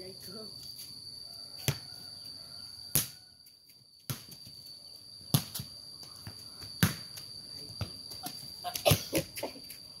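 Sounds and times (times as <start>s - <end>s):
high-pitched insect hum: 0.0s - 10.0s
ball slaps: 2.9s - 3.2s, 4.1s - 4.4s, 5.3s - 7.9s.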